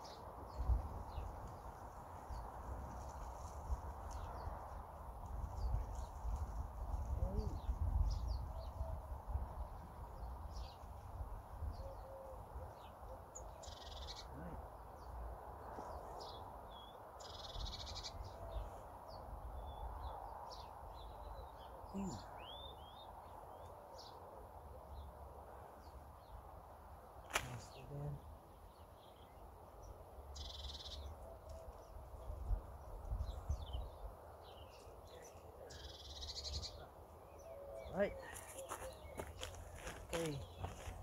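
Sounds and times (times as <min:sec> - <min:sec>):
wind rumble on microphone: 0:00.0 - 0:13.6, 0:31.6 - 0:35.3
birds chirping: 0:27.1 - 0:41.0.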